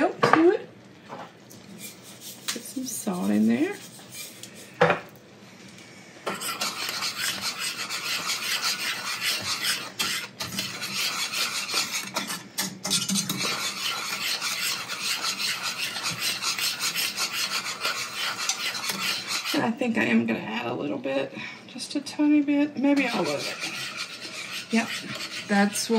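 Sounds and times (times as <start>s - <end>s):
utensil scraping pan: 1.7s - 5.0s, 6.3s - 19.8s, 22.9s - 25.9s.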